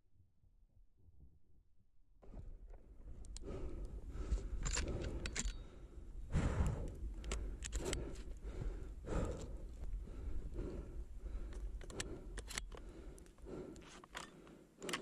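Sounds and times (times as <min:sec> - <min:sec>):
gear rattling clicks: 0:04.4 - 0:05.7, 0:06.9 - 0:08.3, 0:11.4 - 0:15.0.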